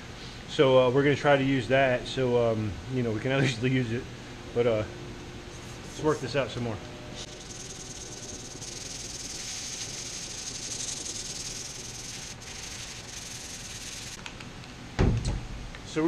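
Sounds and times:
sandpaper rubbing on metal: 7.3s - 14.2s.

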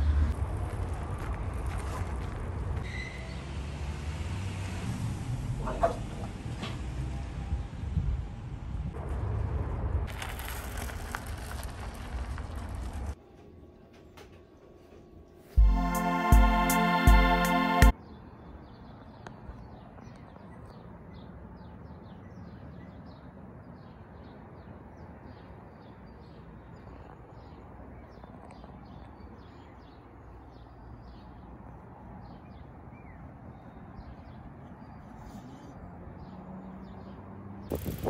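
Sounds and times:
small birds chirping: 18.0s - 38.0s.

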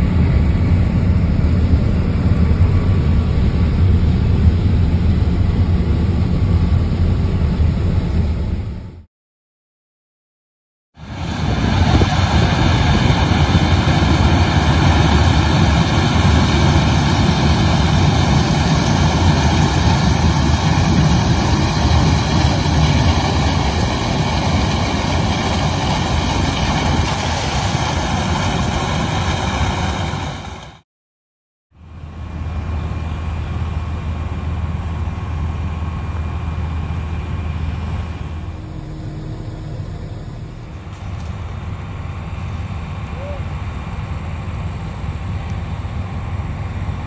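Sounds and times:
combine harvester running: 0.0s - 9.0s, 11.0s - 30.8s, 31.8s - 47.0s
quiet engine hum: 31.8s - 47.0s.

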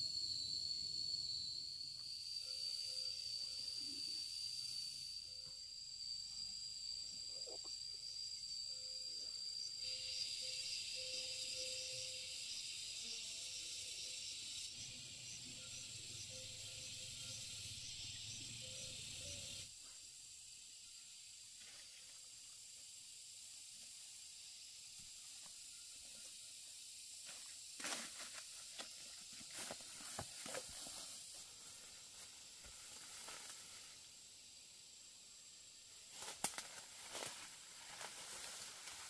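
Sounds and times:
steady high hiss: 14.2s - 39.0s.

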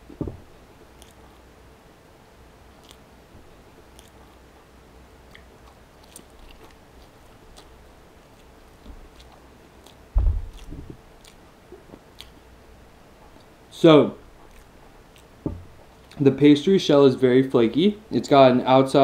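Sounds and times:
low thump: 0.1s - 0.5s, 10.2s - 11.0s, 15.4s - 15.7s
small knocks: 0.1s - 0.5s, 15.4s - 15.7s
chewing flaky pastry: 0.8s - 1.5s, 2.7s - 16.4s.

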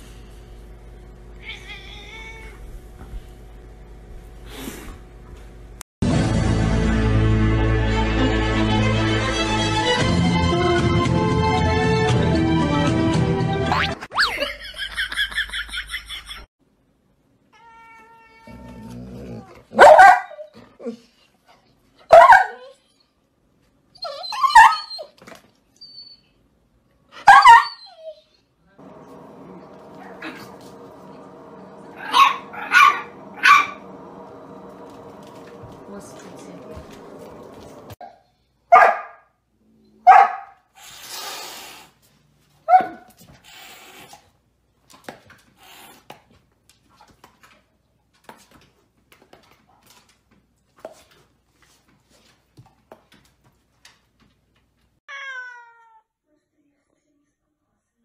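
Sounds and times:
dog yelping: 19.7s - 20.6s, 22.1s - 22.8s, 24.0s - 25.2s, 27.2s - 28.3s, 32.0s - 33.8s.

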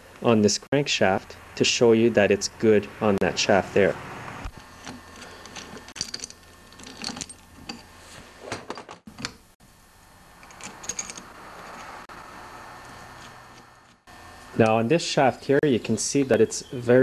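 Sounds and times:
metal engine parts clinking: 4.8s - 7.9s, 10.4s - 12.0s.

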